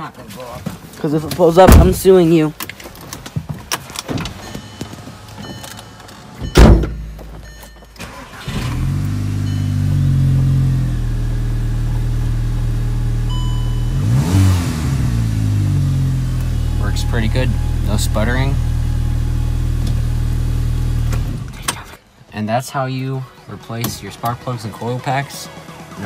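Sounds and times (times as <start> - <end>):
car engine starting and idling: 4.3 - 22.0
sharp thump: 6.5 - 7.1.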